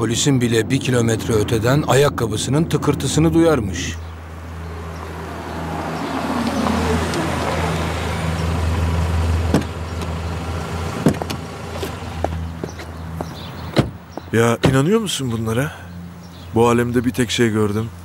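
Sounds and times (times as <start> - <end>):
car engine humming: 0.0 - 18.0
car door clicks and knocks: 9.5 - 10.1, 11.0 - 11.4, 13.7 - 14.0.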